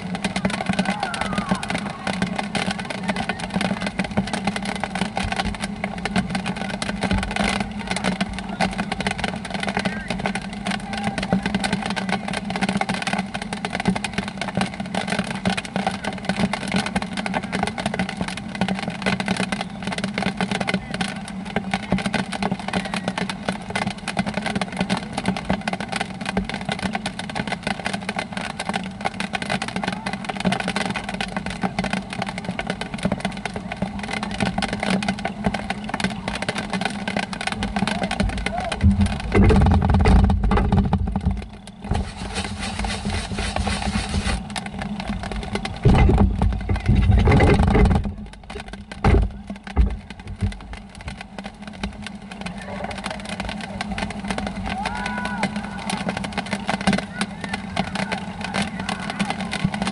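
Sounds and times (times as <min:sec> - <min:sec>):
rain pattering: 0:00.0 - 0:59.9
noisy rumble: 0:31.0 - 0:59.9.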